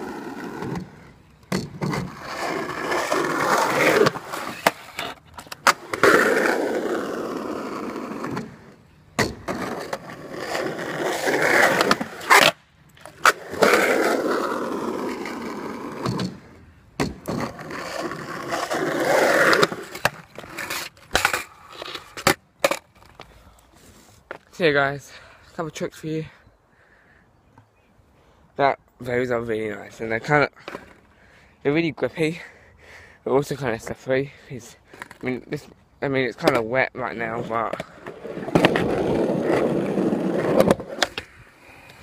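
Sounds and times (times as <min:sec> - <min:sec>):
skateboard rolling over concrete: 0:00.0 - 0:23.2, 0:37.3 - 0:42.0.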